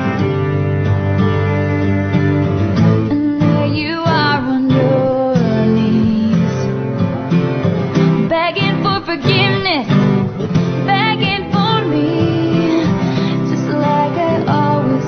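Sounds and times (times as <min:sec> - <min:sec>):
country-pop song with acoustic guitar: 0:00.0 - 0:15.0.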